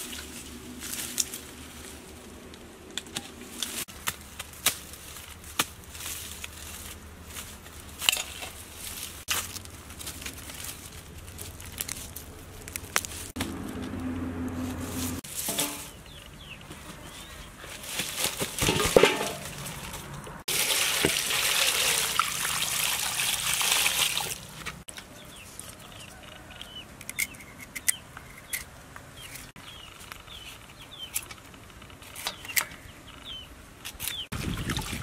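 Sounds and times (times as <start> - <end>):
birds chirping: 15.6 - 17.8, 24.8 - 31.5, 32.1 - 35.0
water dripping: 20.5 - 24.6
water splashing in a steel basin: 20.5 - 24.8, 34.4 - 35.0.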